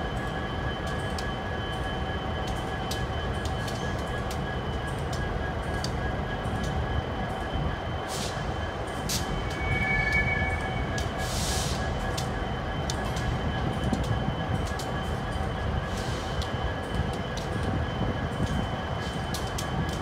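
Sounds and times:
freight train rumbling past: 8.3 - 12.8
high squeal: 9.2 - 12.1.

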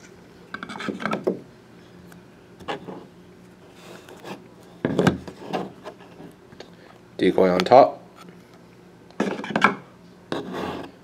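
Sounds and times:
cardboard scraping: 10.3 - 11.0.

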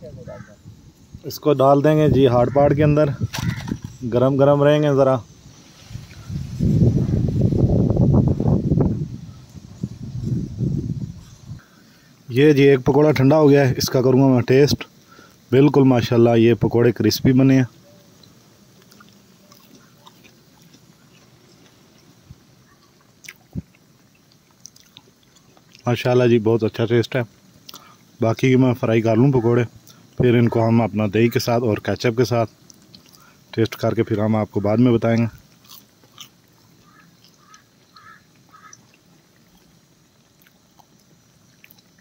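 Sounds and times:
bird calling: 0.0 - 0.8, 2.1 - 4.4, 9.2 - 10.0, 17.7 - 23.5, 36.7 - 39.3
food frying in oil: 17.2 - 28.8, 31.7 - 42.0
soft chewing: 17.9 - 25.9, 27.4 - 28.2, 29.8 - 30.2, 32.5 - 33.5, 35.2 - 42.0
crisp fritter crunching: 18.2 - 22.1, 22.7 - 25.9, 35.1 - 42.0
food deep-frying in oil: 35.0 - 42.0.

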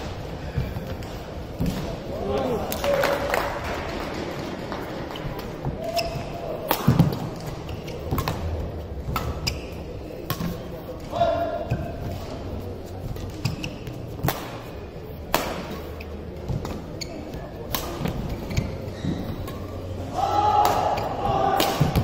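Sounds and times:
racket striking shuttlecock: 14.2 - 14.7, 15.3 - 15.8, 20.6 - 22.0.

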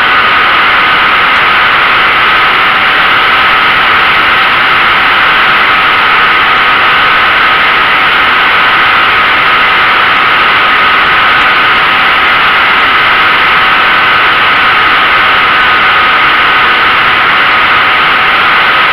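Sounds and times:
propeller motor whine: 0.0 - 18.9
wind rush: 0.0 - 18.9.

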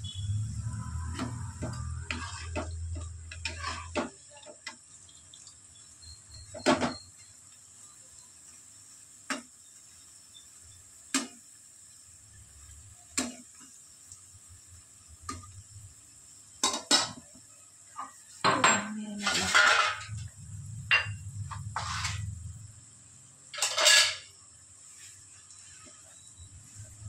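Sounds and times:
metal utensil knocking on pan: 18.4 - 20.1.

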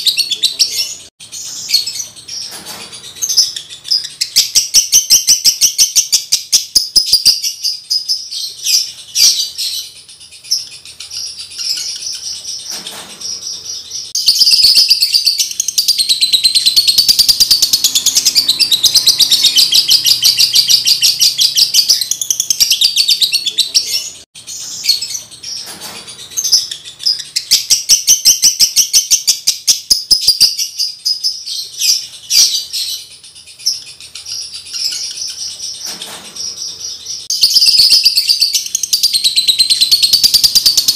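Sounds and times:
bird high-pitched chattering: 0.0 - 40.9.

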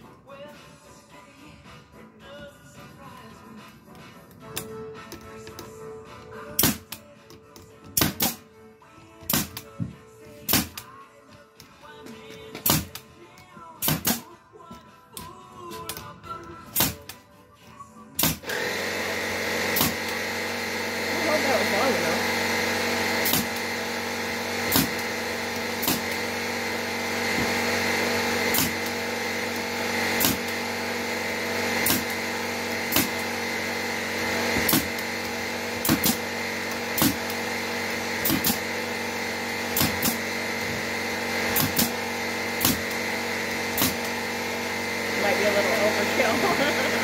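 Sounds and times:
nail gun shots into wood: 6.6 - 7.0, 7.8 - 8.5, 9.2 - 9.7, 10.4 - 10.9, 12.5 - 13.1, 13.8 - 14.4, 16.7 - 17.2, 18.2 - 18.5, 19.7 - 20.2, 23.2 - 23.7, 24.6 - 25.1, 25.8 - 26.3, 28.5 - 29.0, 30.2 - 30.7, 31.8 - 32.2, 32.9 - 33.4, 34.6 - 35.1, 35.8 - 37.4, 38.2 - 38.8, 39.7 - 40.2, 41.5 - 42.0, 42.6 - 43.0, 43.7 - 44.2
steady mechanical hum: 18.4 - 47.0.

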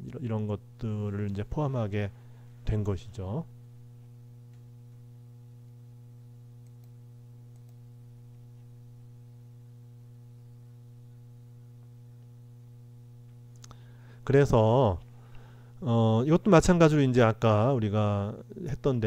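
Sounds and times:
electrical mains hum: 0.0 - 19.0
faint clicks: 6.6 - 7.8.

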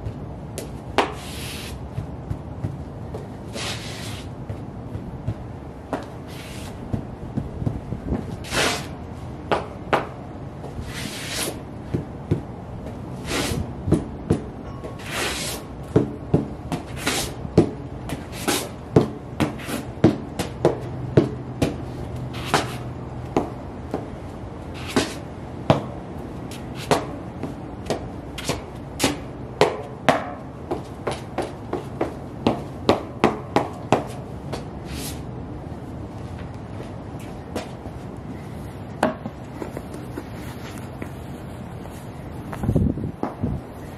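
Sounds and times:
boots stepping on concrete: 0.0 - 35.2, 36.1 - 43.9
soles scraping: 0.1 - 9.3, 10.6 - 12.0, 13.2 - 13.7, 15.0 - 16.1, 16.8 - 17.4, 18.1 - 18.8, 19.5 - 20.0, 21.2 - 24.1, 24.7 - 25.3, 30.7 - 35.2, 36.2 - 43.9.

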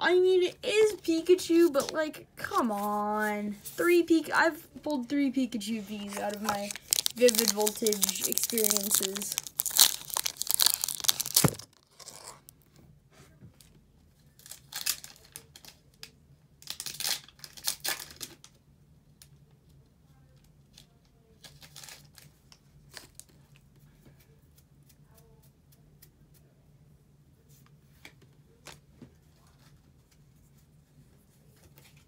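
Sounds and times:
foil wrapper tearing and crinkling: 5.9 - 12.6, 14.4 - 15.8, 16.6 - 18.4, 21.4 - 22.3.

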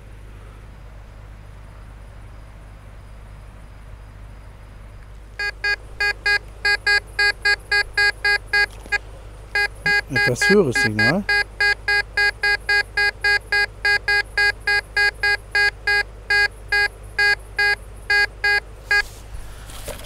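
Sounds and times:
metal detector short beeps: 5.4 - 8.8, 9.6 - 19.1.

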